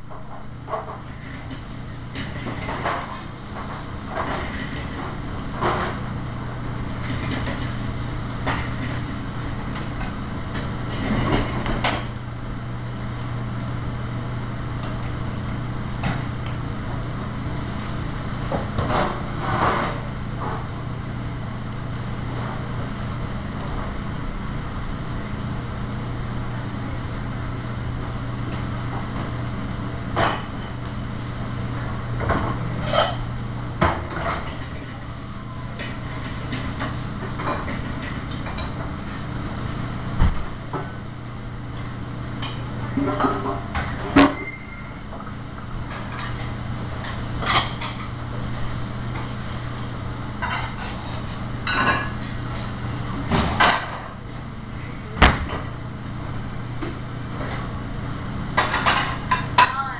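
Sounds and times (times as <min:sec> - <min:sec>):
kitchen exhaust hood hum: 0:00.0 - 0:59.9
metal pans and utensils clanking: 0:32.2 - 0:35.0, 0:42.4 - 0:45.0, 0:45.9 - 0:48.2, 0:50.4 - 0:54.1.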